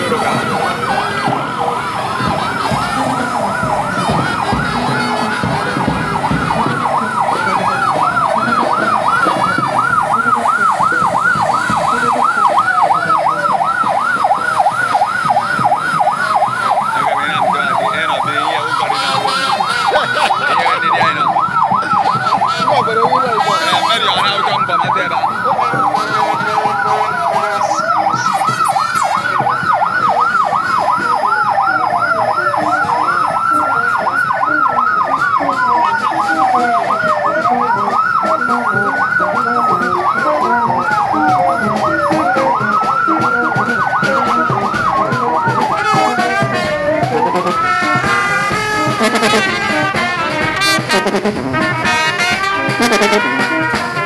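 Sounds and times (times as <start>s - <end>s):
electronic siren yelping: 0.0s - 54.0s
falling siren tone: 0.0s - 54.0s.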